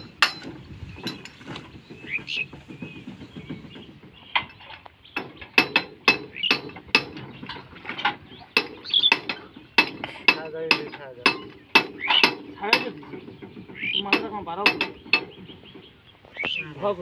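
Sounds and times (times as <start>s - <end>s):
hand tool striking metal: 0.0s - 1.4s, 5.2s - 15.4s.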